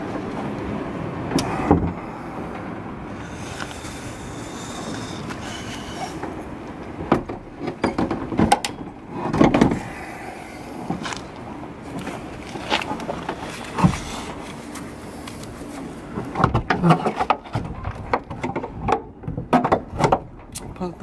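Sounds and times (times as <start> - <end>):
steady background noise: 0.0 - 21.0
metal clanks and knocks: 7.0 - 9.9, 16.3 - 20.5.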